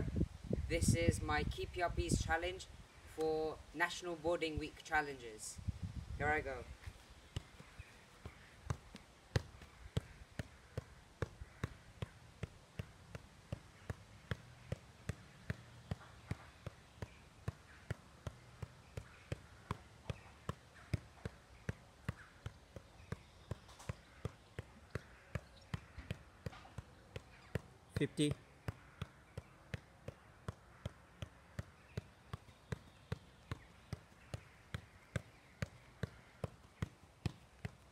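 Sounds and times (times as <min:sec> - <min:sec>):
football thudding against boot: 0:06.8 - 0:27.7.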